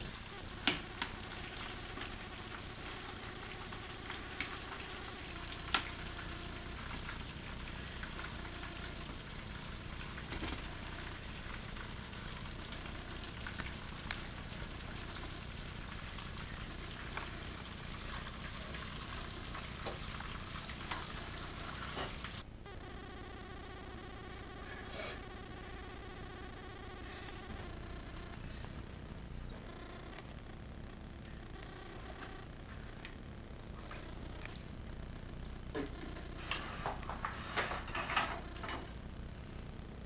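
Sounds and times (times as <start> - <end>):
chicken sizzling in oil: 0.0 - 22.4.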